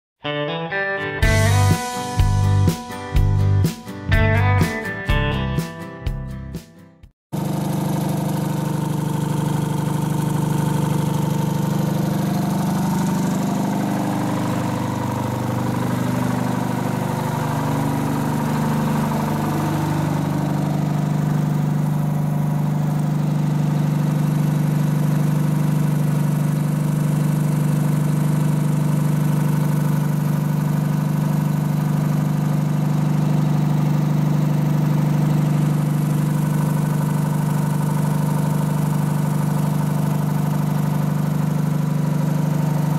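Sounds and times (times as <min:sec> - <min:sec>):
crane engine idling: 0:07.4 - 0:27.3, 0:30.5 - 0:42.9.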